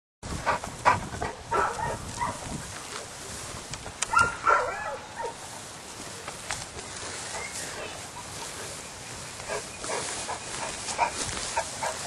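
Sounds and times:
dog barking and yipping: 0:01.2 - 0:02.4, 0:04.1 - 0:05.4, 0:09.5 - 0:12.0.

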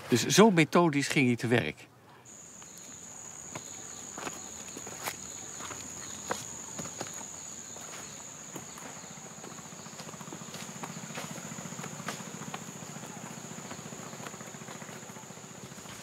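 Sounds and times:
high-pitched insect drone: 0:02.3 - 0:16.0
footsteps and twig snaps: 0:02.4 - 0:09.0, 0:10.0 - 0:12.7.

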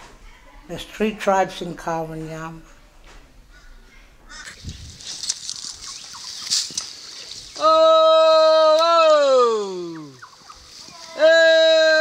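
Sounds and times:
woman calling oh: 0:07.6 - 0:10.2.

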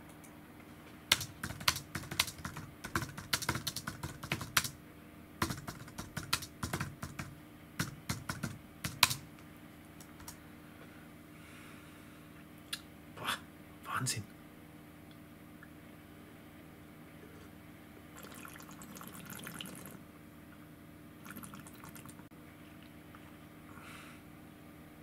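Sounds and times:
typing on a keyboard: 0:01.1 - 0:04.8, 0:05.4 - 0:09.3, 0:10.0 - 0:10.4.

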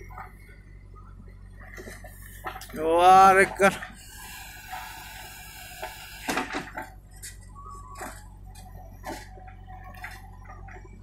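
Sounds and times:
diesel engine running: 0:00.0 - 0:11.0
metallic clanks of backhoe bucket: 0:06.3 - 0:11.0.

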